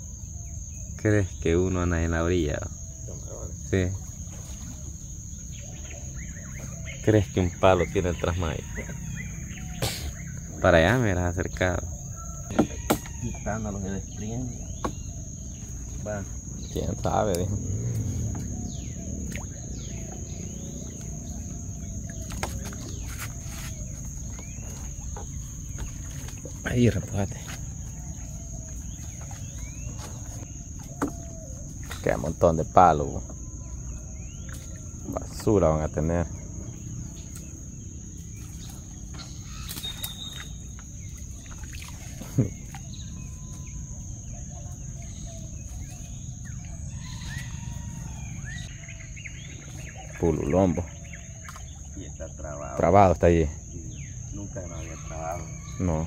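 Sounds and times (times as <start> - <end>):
birds calling with whistled notes: 0.0 - 56.0
high insect drone: 0.0 - 56.0
water sloshing: 11.9 - 35.6, 36.2 - 52.5
short bird chirps: 39.2 - 40.8.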